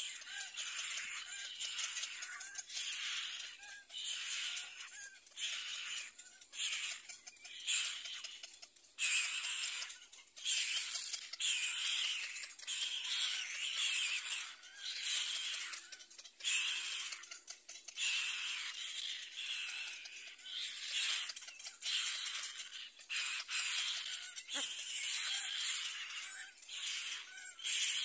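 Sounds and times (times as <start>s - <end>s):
bird chicks hissing begging calls: 0.0s - 7.0s, 18.0s - 28.0s.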